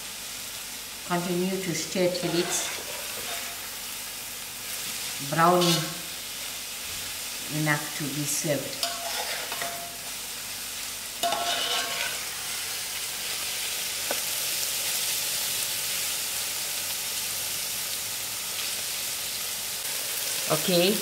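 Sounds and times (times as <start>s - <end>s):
cabbage sizzling in oil: 0.0s - 21.0s
metal spoon scraping pot: 2.2s - 3.6s, 8.8s - 10.0s, 11.2s - 12.3s.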